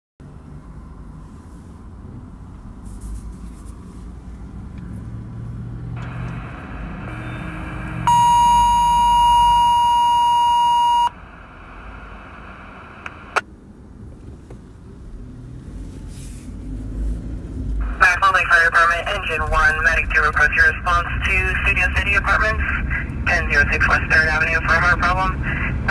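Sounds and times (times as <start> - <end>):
low vehicle rumble: 0.2 - 25.9
high alert tone: 7.1 - 11.2
radio hiss: 10.9 - 13.4, 17.8 - 25.9
radio click: 12.3 - 13.4.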